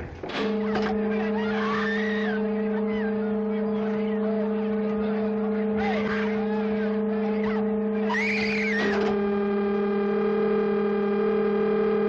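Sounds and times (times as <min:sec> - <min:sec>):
electronic sci-fi drone: 0:00.0 - 0:12.0.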